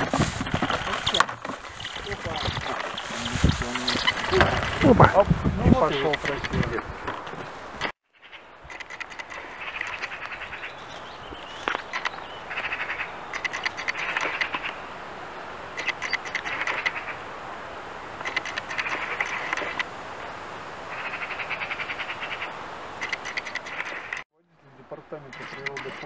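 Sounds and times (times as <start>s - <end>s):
outdoor hiss: 0.0s - 7.8s
trilling animal calls: 0.7s - 5.1s, 7.8s - 14.9s, 15.7s - 17.4s, 18.1s - 20.0s, 20.8s - 24.2s, 25.1s - 26.0s
sharp clicks: 8.7s - 10.4s, 11.6s - 12.2s, 13.3s - 14.8s, 15.8s - 17.0s, 18.2s - 19.9s, 23.0s - 24.2s, 25.3s - 26.0s.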